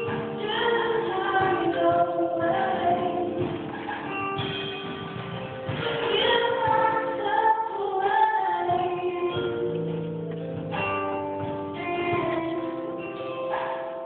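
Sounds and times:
woman singing into a microphone: 0.0 - 3.8, 5.9 - 9.9, 11.8 - 13.1.

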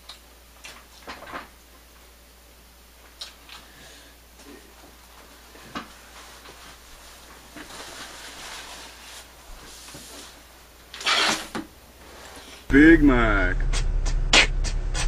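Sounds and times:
paper napkin rustling: 4.9 - 10.7.

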